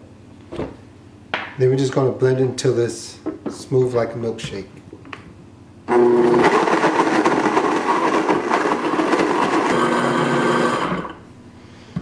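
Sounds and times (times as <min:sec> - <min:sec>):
blender motor running at high speed: 0:05.9 - 0:11.2.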